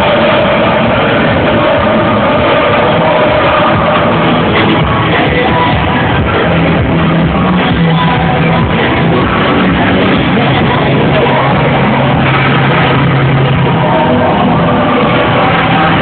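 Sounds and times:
held bass notes: 0.0 - 16.0
loud music with singing: 0.0 - 16.0.

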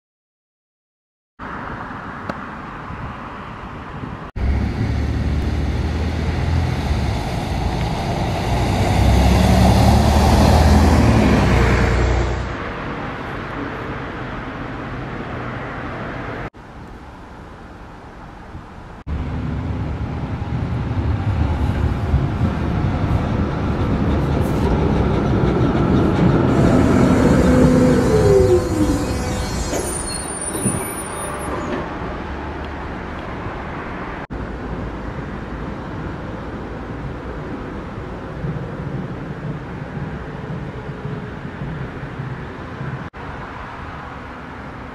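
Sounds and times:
diesel railcar engine and wheels: 1.4 - 44.9
road traffic noise: 1.4 - 44.9
vehicle engine rising in pitch: 4.4 - 12.6, 26.5 - 29.8
brake squeal: 26.5 - 32.0.

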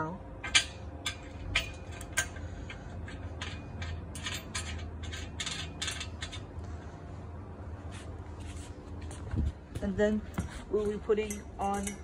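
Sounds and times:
metal nuts scraping and clicking: 0.4 - 6.6, 11.2 - 12.0.

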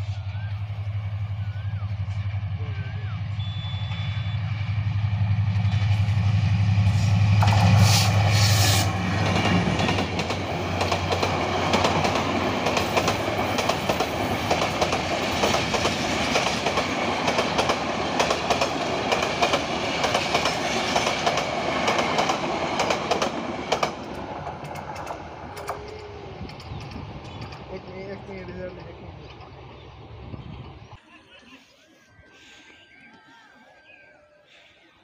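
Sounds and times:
locomotive engine hum: 0.0 - 31.0
train wheels clattering on rails: 7.3 - 29.8.

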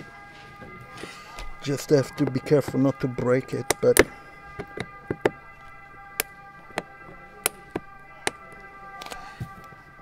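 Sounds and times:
screwdriver clicking on plastic: 3.6 - 9.2.

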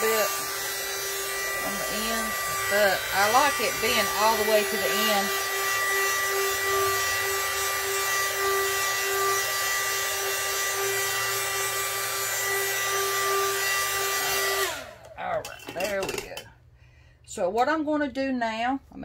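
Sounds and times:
hot air gun blowing with high whine: 0.0 - 15.1.

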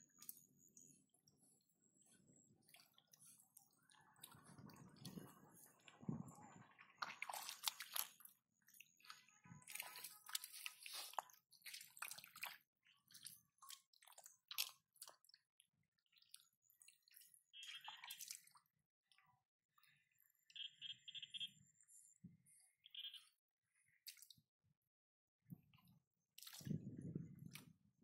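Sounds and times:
hands squelching in wet mud: 6.9 - 15.5, 24.1 - 24.4, 26.4 - 26.8.

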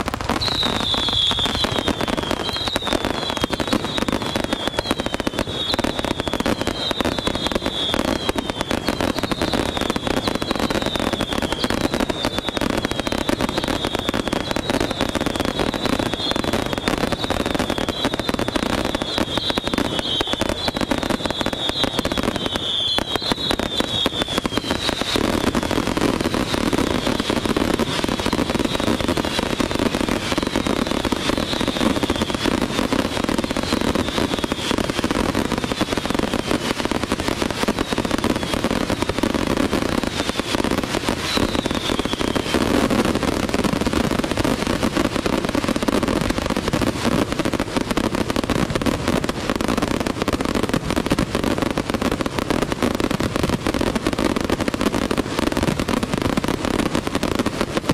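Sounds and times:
fireworks bangs and crackling: 0.0 - 57.9
fireworks whistles: 0.0 - 57.9.

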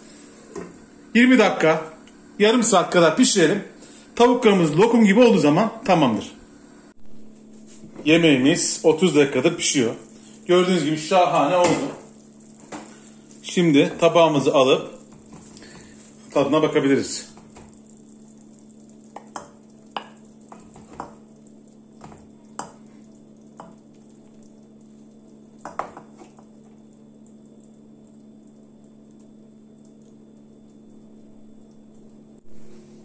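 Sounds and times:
faint stew sizzle: 0.0 - 33.0
low hum: 26.5 - 33.0.

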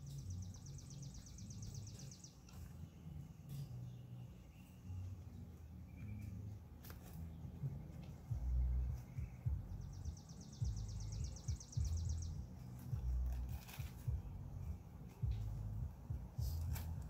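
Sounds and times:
bird trilling: 0.0 - 2.8, 9.0 - 13.2.

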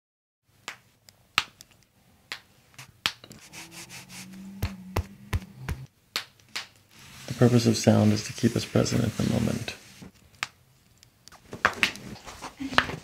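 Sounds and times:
hands rubbing on skin and clothing: 2.8 - 5.9, 6.9 - 10.1.

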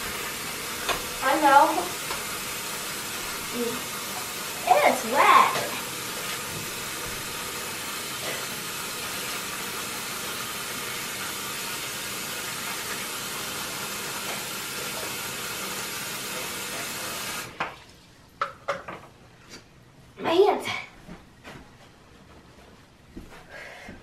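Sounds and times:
tap water running into sink: 0.0 - 19.0.

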